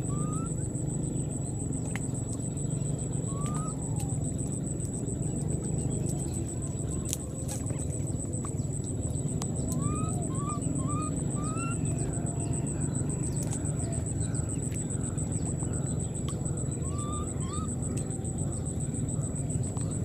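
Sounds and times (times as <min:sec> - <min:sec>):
low rumble of outdoor noise: 0:00.0 - 0:20.0
squeaky animal calls: 0:09.8 - 0:12.2.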